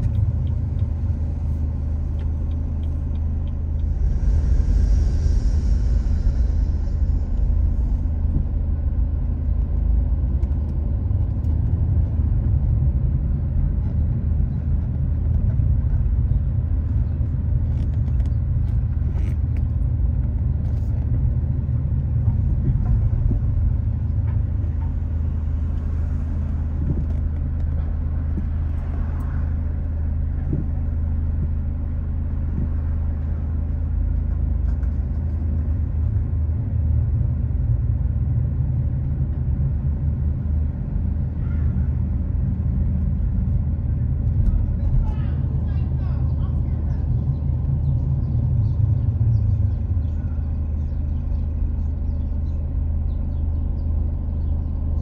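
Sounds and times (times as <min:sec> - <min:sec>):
low vehicle rumble: 0:00.0 - 0:55.0.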